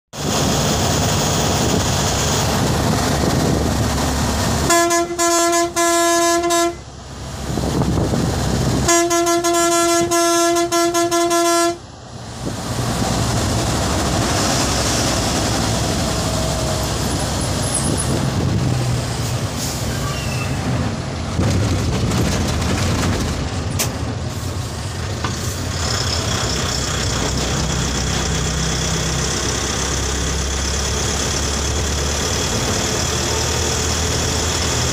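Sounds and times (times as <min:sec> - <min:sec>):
engine and road noise: 0:00.1 - 0:34.9
vehicle horn blasts: 0:04.6 - 0:06.8, 0:08.8 - 0:11.8.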